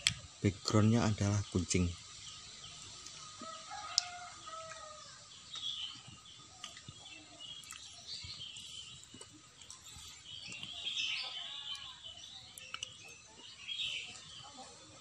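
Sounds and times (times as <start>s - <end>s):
small birds chirping: 0.0s - 15.0s
distant rooster crowing: 3.2s - 5.4s.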